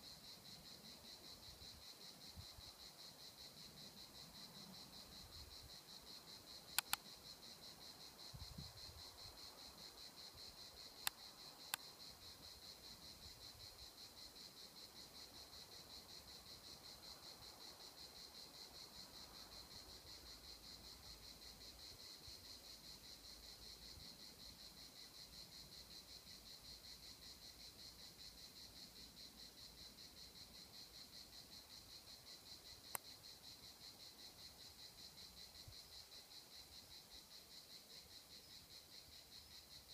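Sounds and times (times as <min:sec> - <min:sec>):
high-pitched insect chorus: 0:00.0 - 0:39.9
sharp clicks: 0:06.7 - 0:07.0.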